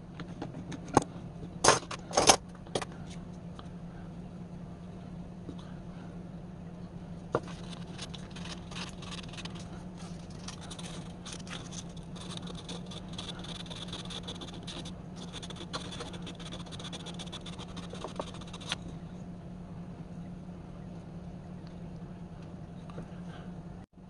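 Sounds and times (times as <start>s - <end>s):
steady low hum: 0.0s - 24.0s
scraping and rubbing on wood: 7.4s - 18.8s.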